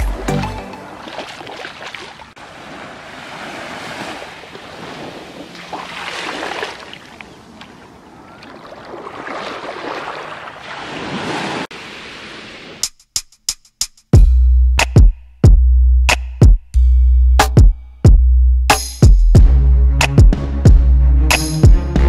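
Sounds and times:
small waves washing on sand: 0.8s - 12.8s.

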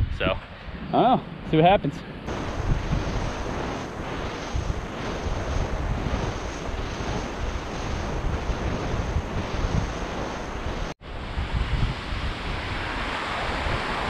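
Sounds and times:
wind buffeting microphone: 0.0s - 14.0s
surf breaking on beach: 2.3s - 14.0s.

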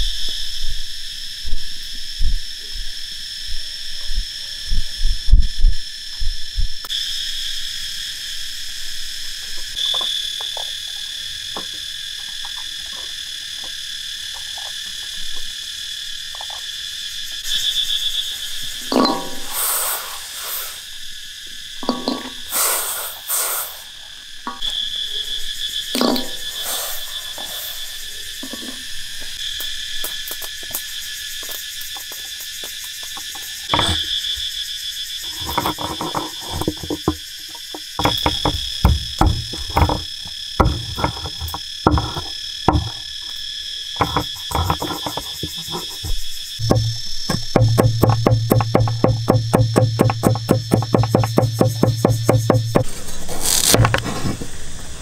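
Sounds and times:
insects droning: 0.0s - 55.0s
clatter and scraping from handling: 35.3s - 43.0s.

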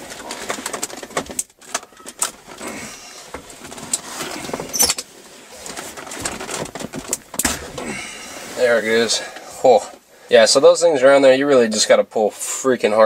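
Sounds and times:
plastic shifter clicking and rattling: 0.0s - 7.8s.

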